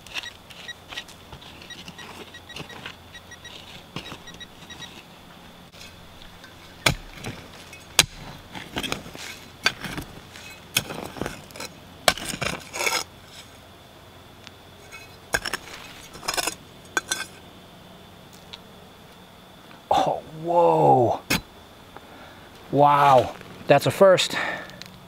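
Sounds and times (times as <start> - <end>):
digging tool scraping soil: 0.0 - 5.1, 5.7 - 13.6, 14.8 - 17.4.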